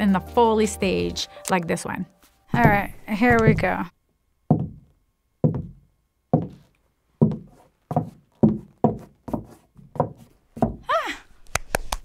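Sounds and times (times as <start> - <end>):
footsteps knocking on floor: 2.5 - 3.9, 4.5 - 10.9.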